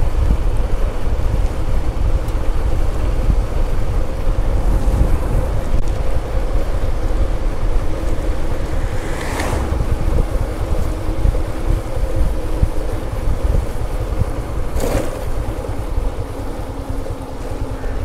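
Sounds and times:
motorcycle engine hum: 0:00.0 - 0:18.0
wind buffeting microphone: 0:00.0 - 0:18.0
car passing with a whoosh: 0:04.2 - 0:13.9.

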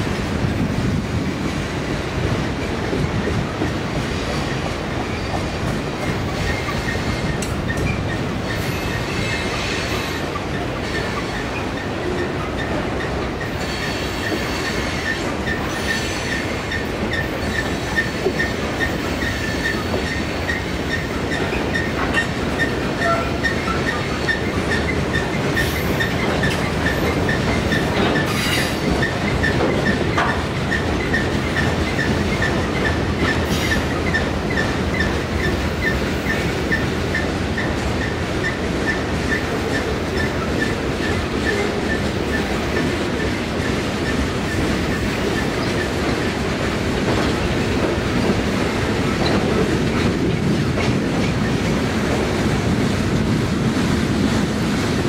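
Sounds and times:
freight train wheels on rails: 0:00.0 - 0:55.0.

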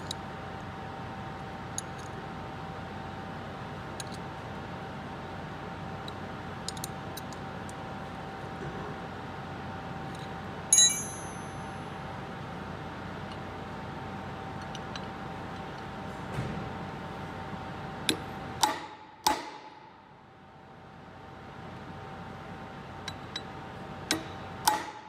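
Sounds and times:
faint steady hum: 0:00.0 - 0:25.0
wrench clanging on concrete: 0:10.7 - 0:11.7.

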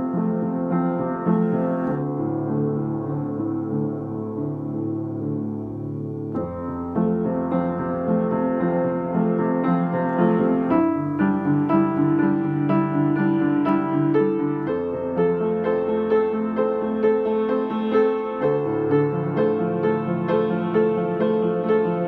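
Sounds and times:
slow piano piece: 0:00.0 - 0:22.0.

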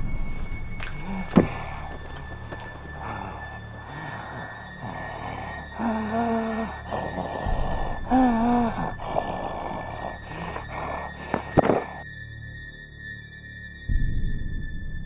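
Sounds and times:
person making wordless vocal sounds: 0:01.0 - 0:12.0
static hiss: 0:08.7 - 0:12.0.

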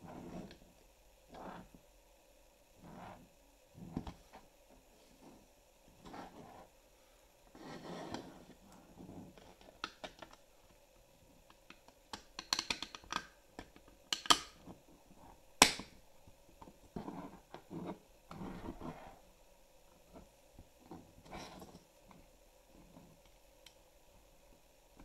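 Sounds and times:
plastic snap: 0:15.6 - 0:15.9.

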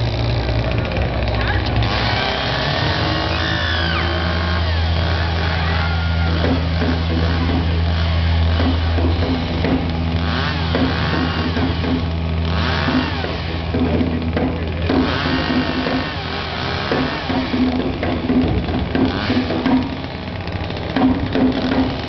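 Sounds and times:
chainsaw engine running: 0:00.0 - 0:22.0.

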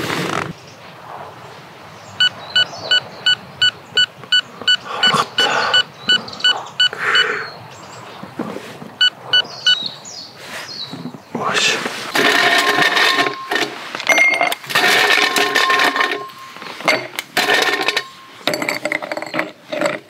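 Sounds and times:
short electronic beeps: 0:02.2 - 0:07.4, 0:09.0 - 0:09.9, 0:12.2 - 0:14.5, 0:15.2 - 0:18.4.

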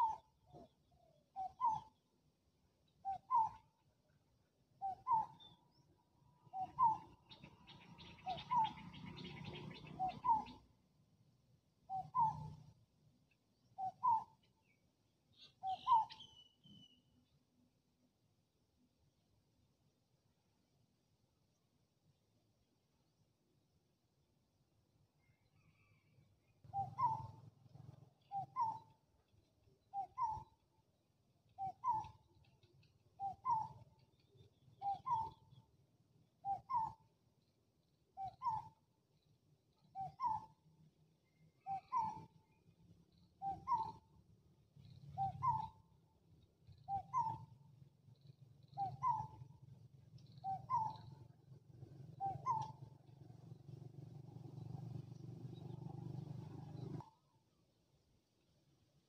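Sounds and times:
low steady rumble: 0:51.0 - 0:57.0.

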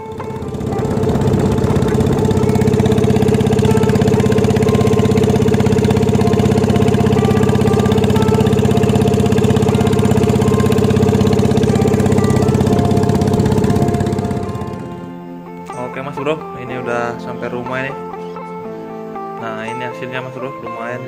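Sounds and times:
boat engine pulsing: 0:00.0 - 0:15.8.

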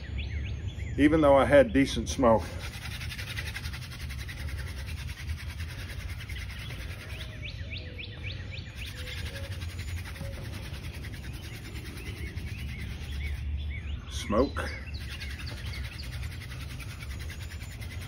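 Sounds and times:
bird chirping: 0:00.0 - 0:18.0
wooden spindle rubbing on board: 0:02.3 - 0:07.6, 0:08.8 - 0:13.5, 0:14.9 - 0:18.0.

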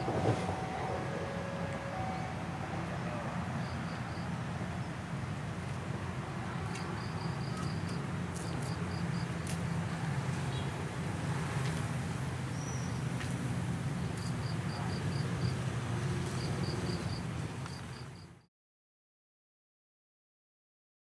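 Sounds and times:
train rumbling at platform: 0:00.0 - 0:18.0
insect chirping: 0:03.6 - 0:04.3, 0:16.4 - 0:18.3.

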